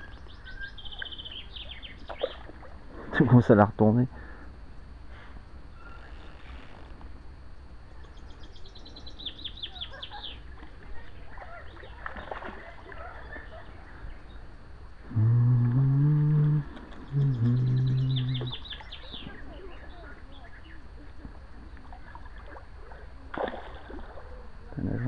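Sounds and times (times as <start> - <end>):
fish splashing in water: 10.6 - 13.6, 21.8 - 24.6
long low calls: 13.3 - 21.0.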